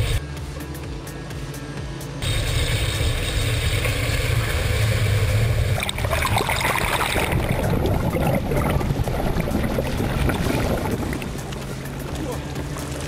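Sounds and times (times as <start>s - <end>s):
water rushing into car: 5.6s - 11.4s
bubbling underwater turbulence: 5.7s - 11.4s.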